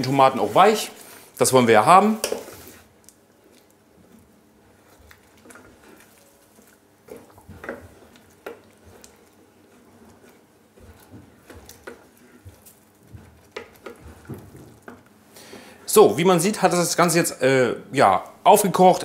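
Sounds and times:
wooden spoon stirring sauce in pot: 0.0s - 17.1s
sauce popping and bubbling: 2.2s - 15.6s.

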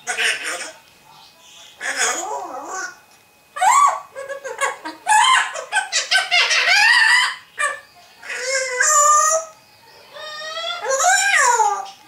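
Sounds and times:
parrot squawking and whistling: 3.6s - 12.0s.

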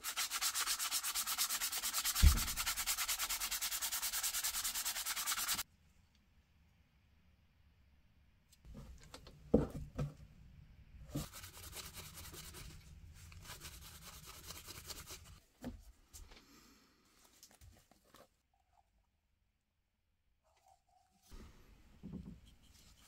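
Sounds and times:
hand sanding a workpiece: 0.0s - 5.6s, 11.2s - 12.8s, 13.4s - 15.4s
faint handling sounds: 15.4s - 18.9s.

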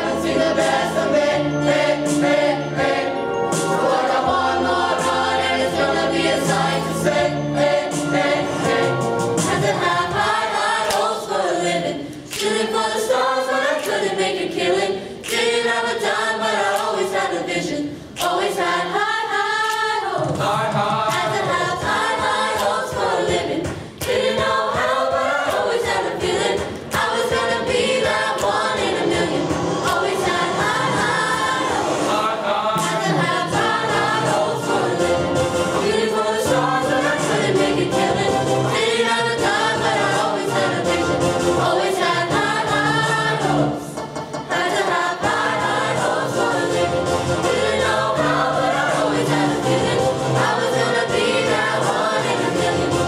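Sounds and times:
chorus singing: 0.0s - 53.0s.

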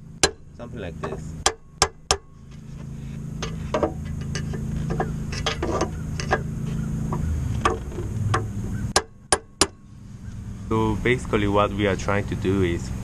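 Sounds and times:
low rumble: 0.0s - 9.0s
light metal taps and clicks: 1.0s - 2.2s, 3.4s - 10.4s.

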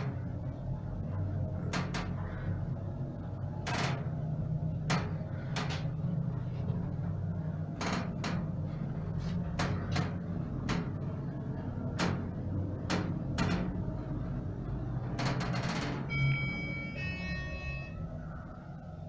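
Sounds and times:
lift hum: 0.0s - 19.0s
clicks and knocks from lift car: 9.4s - 11.2s, 11.8s - 13.9s.

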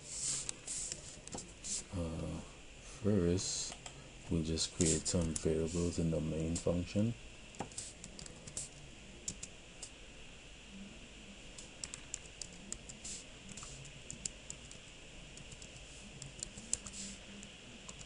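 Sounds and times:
computer keyboard typing: 11.8s - 12.9s, 15.4s - 16.9s.

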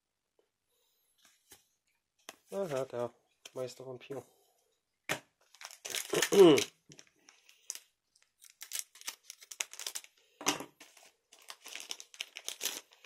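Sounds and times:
foil wrapper crinkling: 5.4s - 10.2s, 10.8s - 13.0s
foil tearing: 5.6s - 6.7s, 8.4s - 10.1s, 11.4s - 13.0s.

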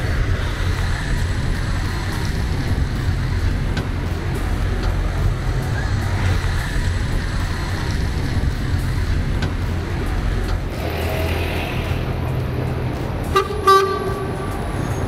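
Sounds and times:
bus passing close by: 0.0s - 15.0s
traffic engines rumbling: 0.0s - 15.0s.

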